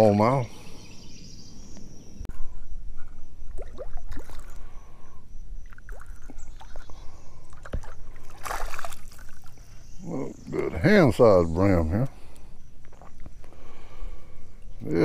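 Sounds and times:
water sloshing against boat hull: 5.7s - 9.7s.

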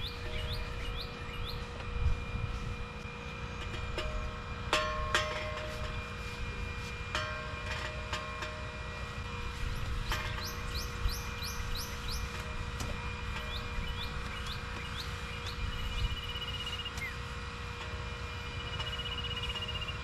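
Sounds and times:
bird chirping: 0.0s - 1.7s
steady low rumble: 0.0s - 17.1s.

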